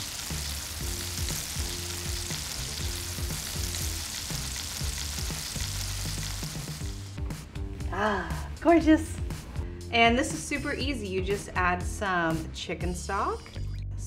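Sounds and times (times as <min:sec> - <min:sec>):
chicken deep-frying in oil: 0:00.0 - 0:07.0.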